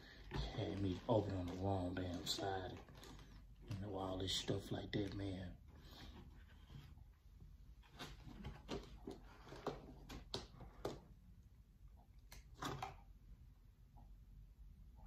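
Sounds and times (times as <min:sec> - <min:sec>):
shoe box packaging rustling: 0:00.0 - 0:07.0.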